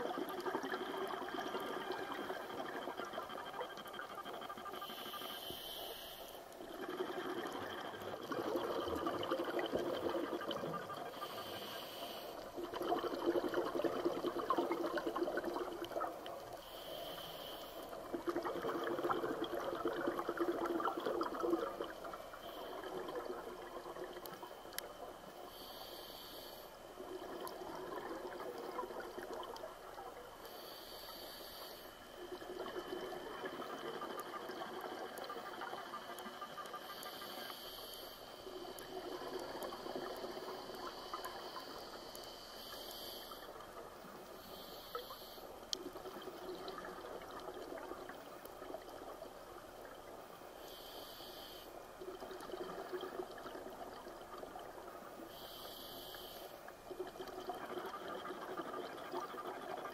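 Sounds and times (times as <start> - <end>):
regulator hissing inhalation: 4.8 - 6.5, 11.1 - 12.4, 16.6 - 18.0, 25.5 - 26.8, 50.6 - 51.8, 55.3 - 56.6.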